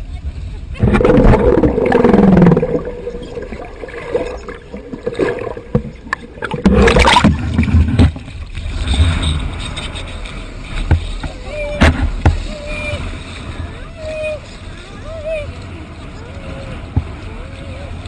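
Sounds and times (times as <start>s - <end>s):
underwater sloshing and gurgling: 0.3s - 18.0s
water splashing surge: 0.8s - 13.8s.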